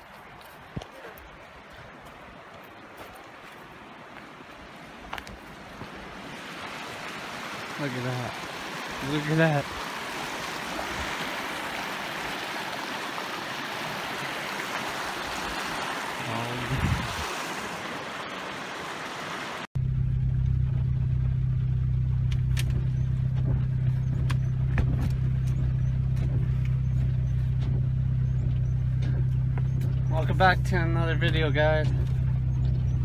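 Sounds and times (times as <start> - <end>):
creek rushing over rocks: 0.0 - 19.7
car engine idling: 19.8 - 33.0.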